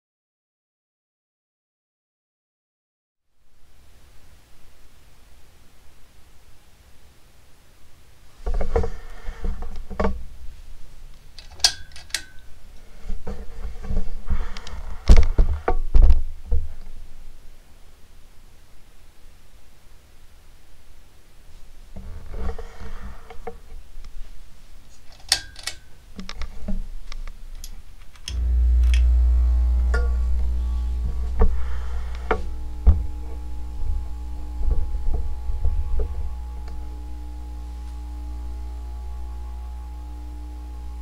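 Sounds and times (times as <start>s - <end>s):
ceiling fan motor hum: 26.8s - 41.0s.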